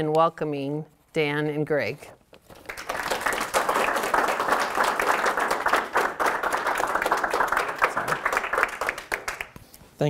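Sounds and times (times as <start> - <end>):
small audience applauding: 2.5 - 9.6.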